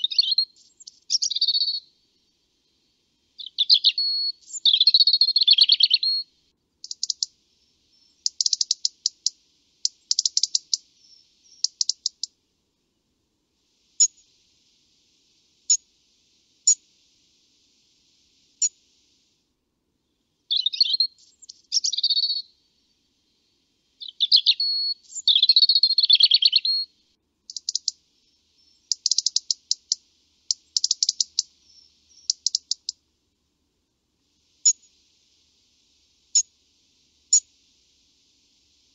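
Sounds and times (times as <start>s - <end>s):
robin singing: 0.0s - 12.4s, 20.0s - 33.0s.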